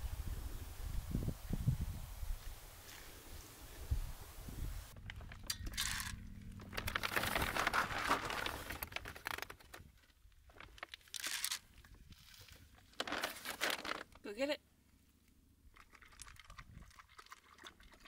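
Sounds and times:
bag rustling: 5.0 - 9.9, 12.8 - 14.2
dog kibble pouring into metal bowl: 5.7 - 6.2.

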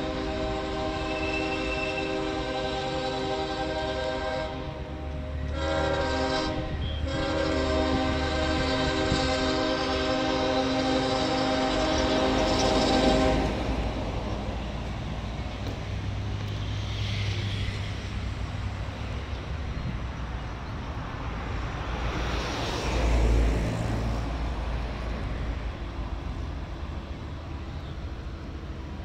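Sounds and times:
locomotive horn: 0.0 - 13.9
diesel locomotive engine rumbling: 0.0 - 29.0.

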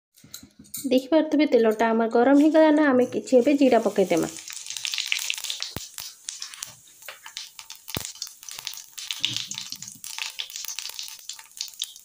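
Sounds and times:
seeds sizzling in hot oil: 2.3 - 12.0
sharp crackles and pops: 3.6 - 12.0.

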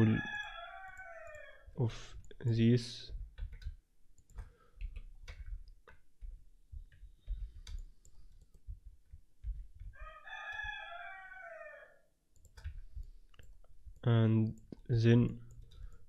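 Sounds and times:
keyboard key presses: 3.1 - 10.7, 12.4 - 13.5
computer mouse clicks: 3.4 - 10.7, 12.4 - 14.9.

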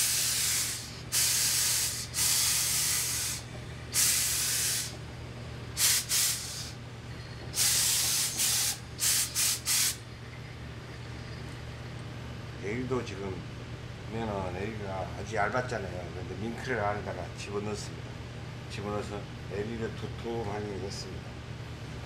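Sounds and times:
steam iron hissing: 0.0 - 5.0, 5.8 - 6.8, 7.5 - 10.0.

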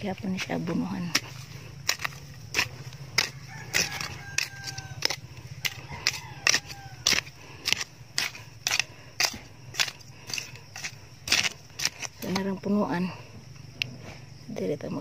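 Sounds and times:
metal blade striking soil and stones: 0.2 - 12.7
rooster crowing: 3.2 - 7.9.

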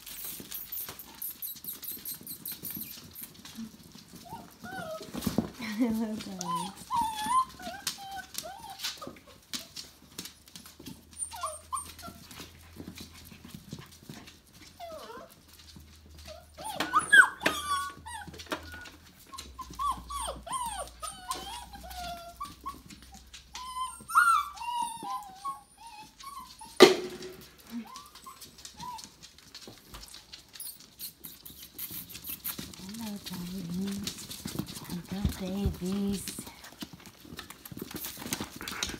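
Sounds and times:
puppies whimpering and squealing: 0.0 - 10.0, 10.6 - 13.5, 14.5 - 27.0, 27.7 - 38.9.

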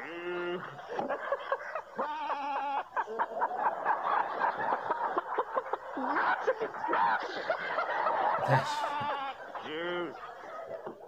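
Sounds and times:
laughter: 0.4 - 11.0
man imitating goat bleat: 8.5 - 9.3.

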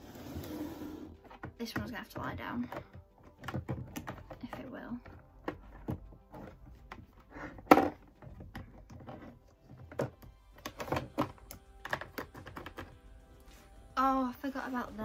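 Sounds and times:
plastic items clicking and knocking: 1.2 - 13.1.

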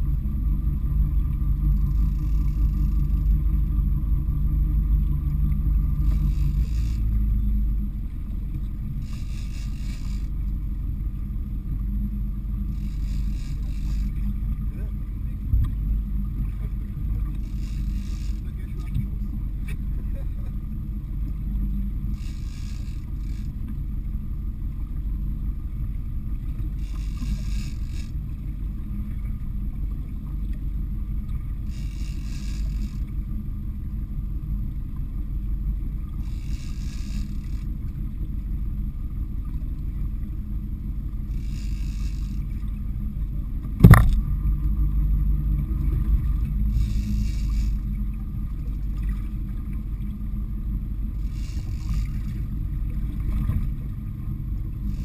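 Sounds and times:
fishing boat engine rumble: 0.0 - 55.0
sharp knock: 43.8 - 44.2.

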